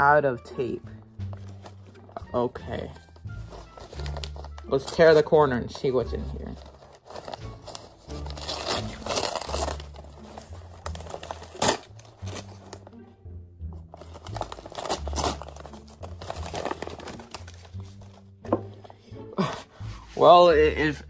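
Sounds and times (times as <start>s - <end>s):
quiet background music: 0.0s - 21.0s
paper rustling and crinkling: 1.2s - 5.4s, 6.1s - 12.9s, 13.8s - 18.9s.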